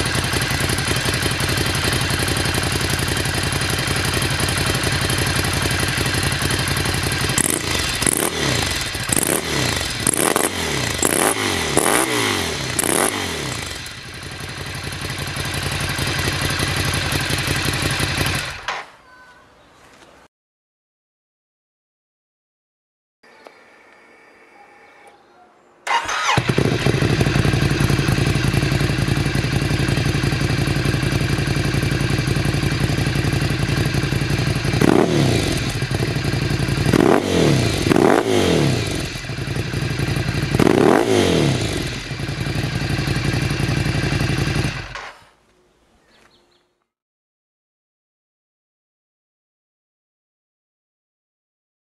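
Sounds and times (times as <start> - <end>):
motorcycle engine idling and revving: 0.0 - 18.8, 25.9 - 45.3.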